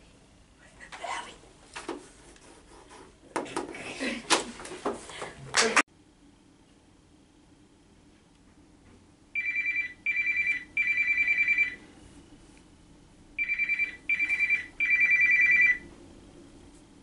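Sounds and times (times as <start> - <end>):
phone trilling ringtone: 9.4 - 11.8, 13.4 - 15.8.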